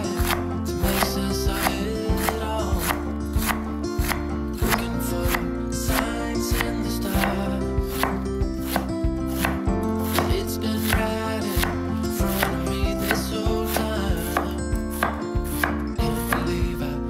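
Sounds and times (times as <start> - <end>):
knife shredding cabbage: 0.0 - 16.5
background music: 0.0 - 17.0
knife knocking on wooden board: 12.4 - 16.5.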